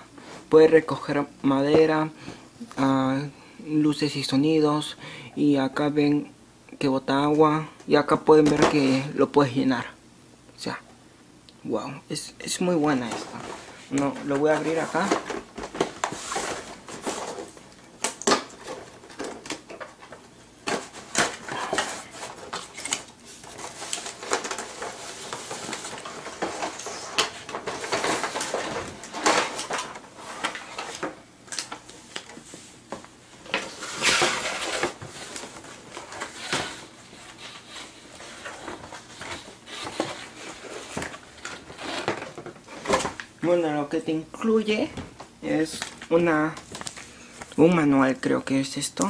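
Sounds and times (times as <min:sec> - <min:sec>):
cardboard rustling and scraping: 0:12.8 - 0:43.2.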